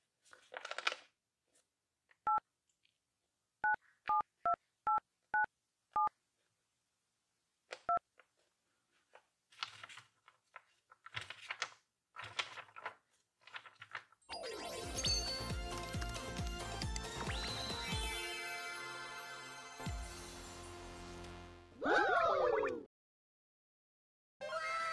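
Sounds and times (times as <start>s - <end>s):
paper rustling and crinkling: 0.0s - 1.7s, 7.7s - 14.2s.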